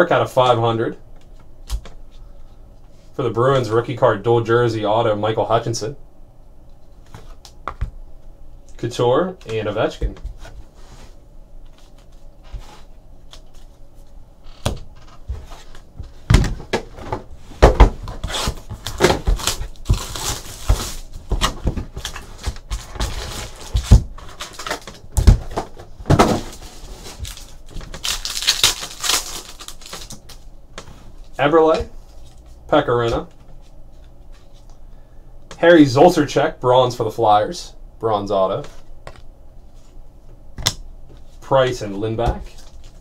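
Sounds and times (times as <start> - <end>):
foil wrappers crinkling and tearing: 18.2 - 25.4, 26.2 - 30.5.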